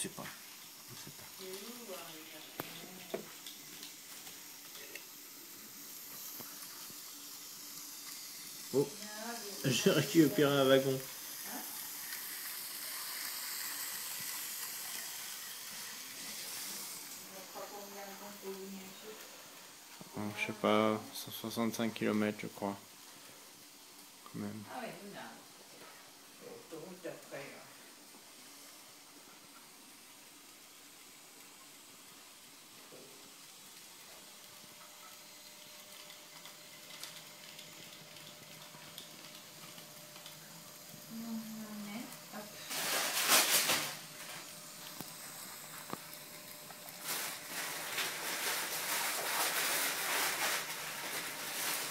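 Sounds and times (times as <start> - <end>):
model train motor whirring: 0.0 - 20.9, 29.8 - 42.8.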